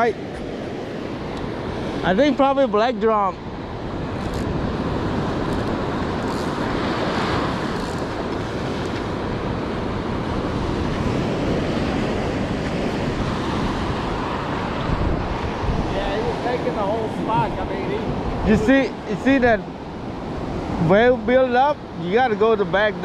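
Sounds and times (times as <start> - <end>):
ocean surf washing onto beach: 0.0 - 23.0
wind noise on microphone: 3.4 - 21.0.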